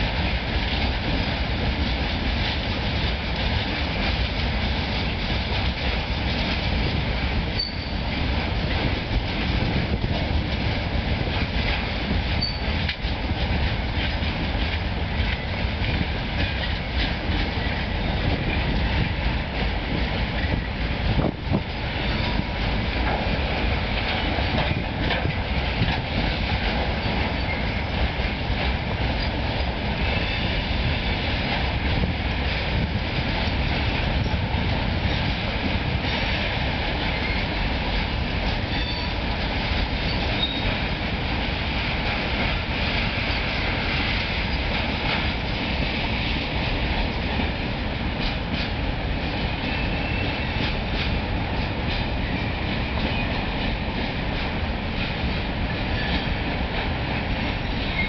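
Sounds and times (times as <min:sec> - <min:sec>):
train wheels rumbling on rails: 0:00.0 - 0:58.0
wheels clicking over rail joints: 0:01.8 - 0:47.5.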